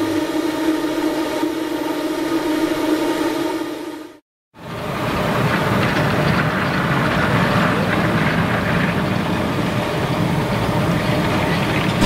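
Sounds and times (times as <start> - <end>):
miniature steam train rumbling: 4.6 - 12.0.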